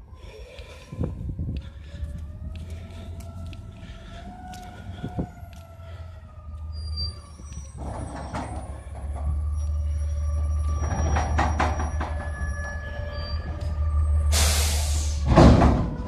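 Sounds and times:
diesel engine droning: 0.0 - 16.0.

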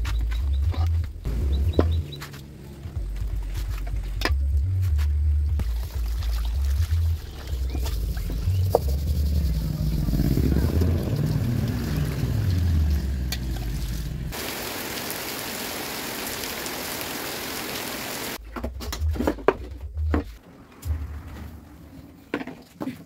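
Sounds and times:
low rumble: 1.2 - 14.4
water from hose into metal pot: 11.2 - 18.4
rain falling on wet road: 14.3 - 18.4.

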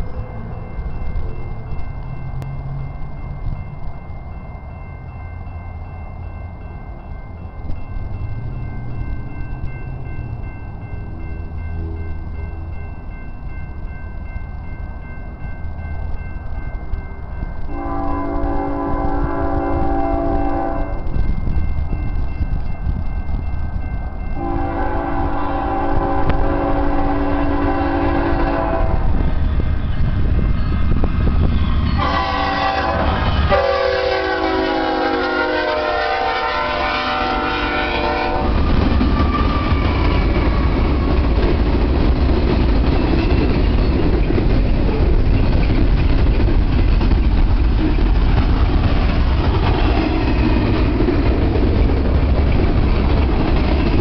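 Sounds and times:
freight cars rumbling and clattering: 0.0 - 17.7, 28.9 - 33.7, 38.0 - 54.0
locomotive air horn blasts: 17.7 - 21.0, 24.4 - 29.2, 32.0 - 38.6.

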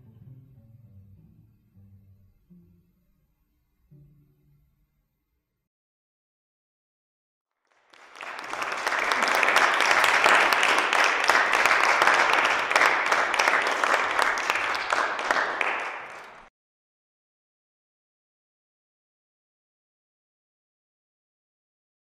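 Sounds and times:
audience applauding: 7.6 - 16.5.

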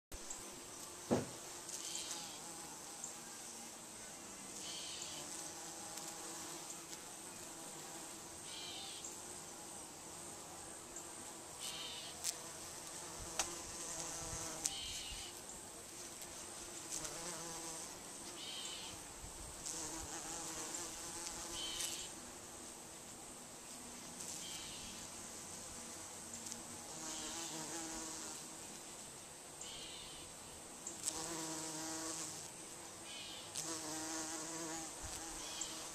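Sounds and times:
bees buzzing: 16.0 - 19.0, 24.2 - 28.5, 31.0 - 32.5, 33.5 - 35.9.

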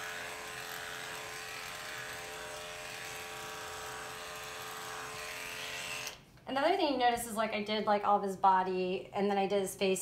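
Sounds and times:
electric clippers humming: 0.0 - 6.2.

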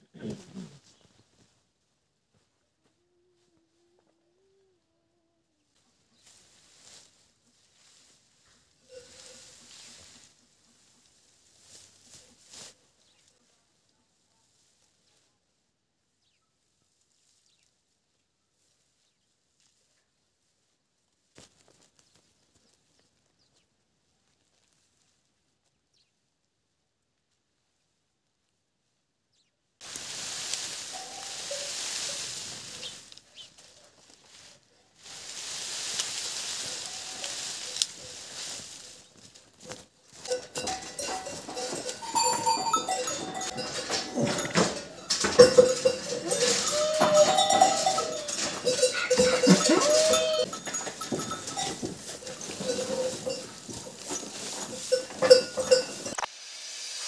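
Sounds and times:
hay rustling: 6.2 - 13.4, 29.8 - 56.2
farm animals calling: 8.4 - 11.3, 30.9 - 34.5, 36.4 - 39.2, 40.1 - 56.2
footsteps crunching on snow: 29.8 - 56.1.

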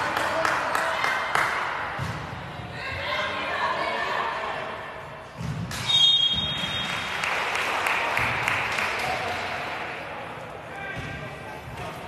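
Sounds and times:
crowd and player voices echoing: 0.0 - 12.0
referee's whistle blast: 5.8 - 7.0.

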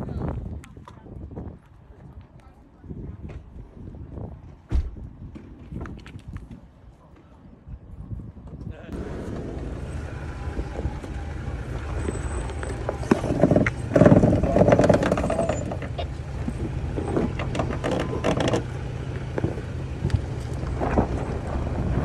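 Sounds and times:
off-road vehicle engine running low: 8.7 - 22.0
rocks crunching under tyres: 9.0 - 22.0
tyre rubbing against vehicle body: 10.6 - 21.4.

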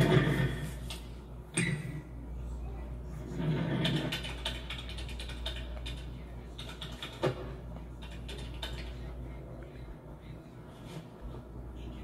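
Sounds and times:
typing on computer keyboard: 3.8 - 7.4, 8.0 - 8.9.

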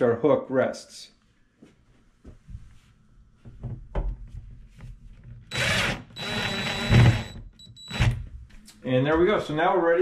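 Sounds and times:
drill whining: 5.5 - 8.2.

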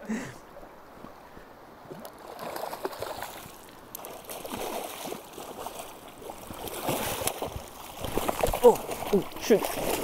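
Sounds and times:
steady stream: 0.0 - 10.0
river water splashing: 0.1 - 10.0.

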